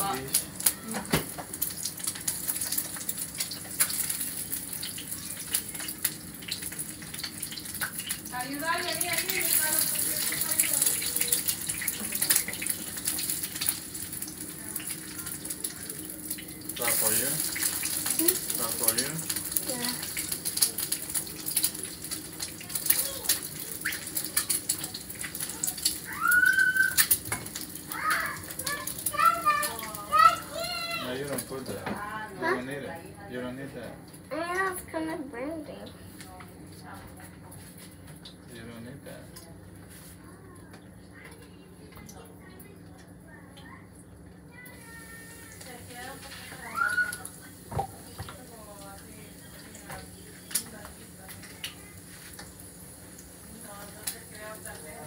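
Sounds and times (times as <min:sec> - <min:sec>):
food sizzling in a skillet: 0:00.0 - 0:37.0, 0:44.4 - 0:55.0
child high-pitched vocal sound: 0:25.5 - 0:27.0, 0:28.0 - 0:31.0, 0:44.5 - 0:45.6, 0:46.6 - 0:47.3.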